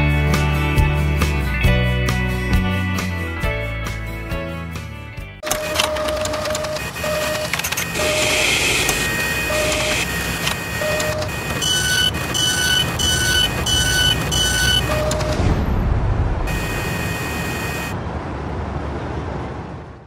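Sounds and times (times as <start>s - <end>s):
machinery whirring and clicking: 5.4s - 15.7s
higher beep: 16.5s - 18.0s.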